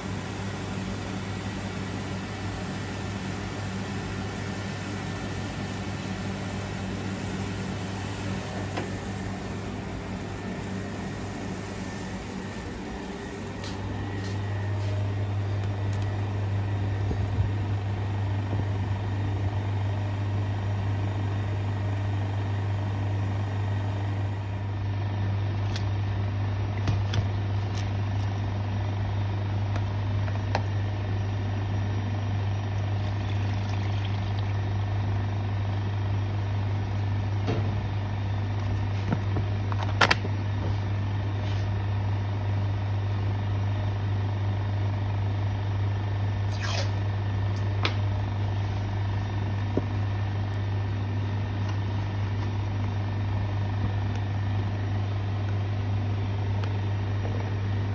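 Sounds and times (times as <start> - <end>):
kitchen machinery humming: 0.0 - 57.9.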